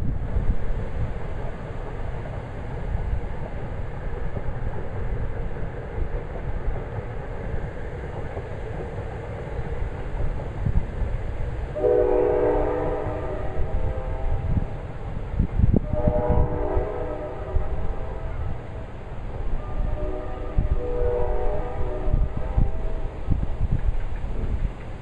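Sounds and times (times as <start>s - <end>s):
wind buffeting microphone: 0.0s - 25.0s
distant train horn chord: 11.7s - 14.9s, 15.8s - 23.5s.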